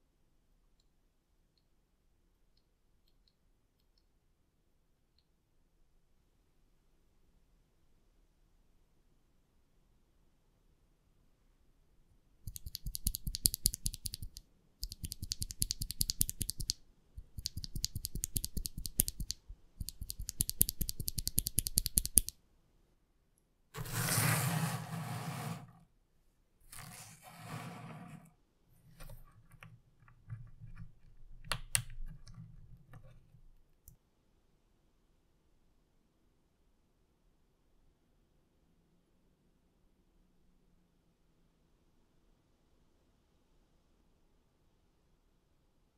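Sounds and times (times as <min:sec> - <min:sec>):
keyboard switches clicking: 0:12.5 - 0:22.3.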